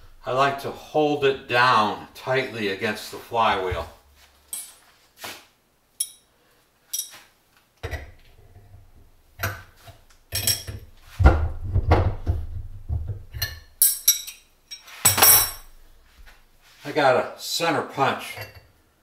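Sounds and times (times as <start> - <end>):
metal tools clinking and knocking: 6.0 - 6.3, 6.9 - 7.2, 10.3 - 10.8, 13.4 - 15.7
sharp metal clanks: 6.0 - 6.3, 13.4 - 15.7.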